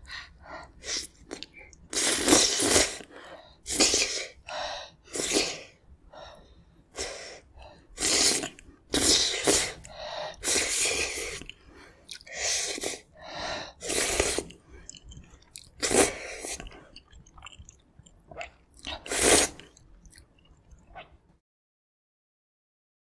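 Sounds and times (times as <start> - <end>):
slurping noodles: 0.8 - 3.1, 3.7 - 4.4, 5.1 - 5.7, 8.0 - 17.8, 18.4 - 19.8.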